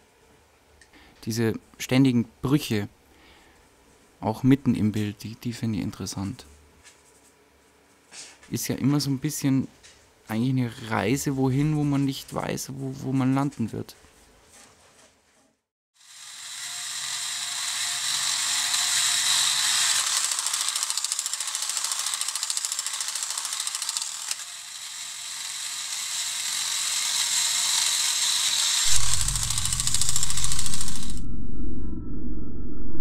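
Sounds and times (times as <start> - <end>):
toy robot whirring rattle: 16.0 - 31.2
low drone: 28.9 - 33.0.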